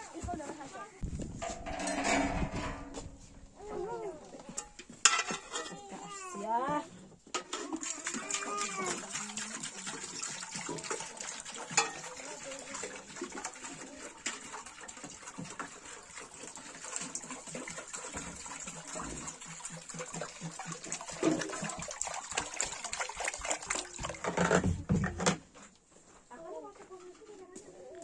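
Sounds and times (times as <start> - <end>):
water pouring into metal pot: 7.4 - 24.7.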